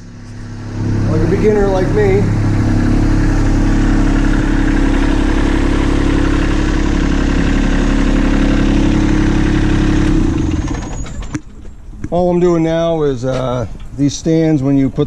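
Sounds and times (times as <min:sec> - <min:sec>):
tractor diesel engine idling: 0:00.0 - 0:15.0
engine click: 0:10.0 - 0:12.3.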